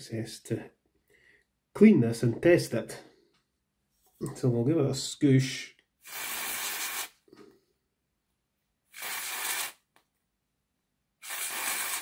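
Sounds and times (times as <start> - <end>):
aerosol spray hissing: 6.0 - 7.2, 8.9 - 9.8, 11.2 - 12.0.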